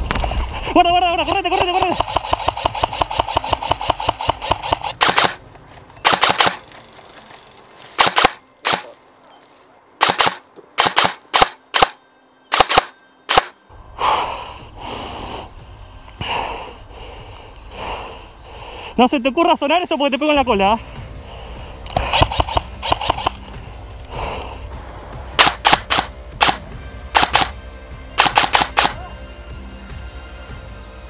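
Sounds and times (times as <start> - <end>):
airsoft rifles firing: 1.2 - 5.4, 6.0 - 7.3, 8.0 - 9.0, 10.0 - 13.6, 21.9 - 23.5, 25.4 - 27.6, 28.2 - 29.1.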